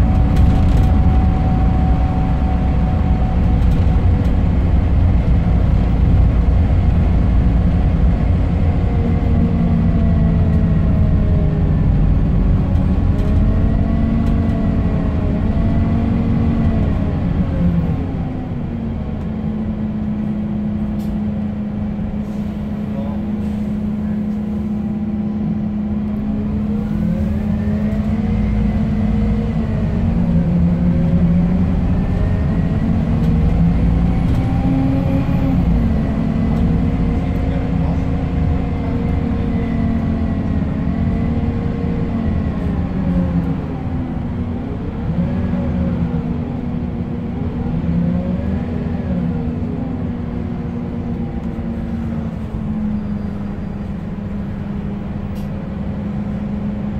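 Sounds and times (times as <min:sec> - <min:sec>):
bus engine rumble with whine: 0:00.0 - 0:56.9.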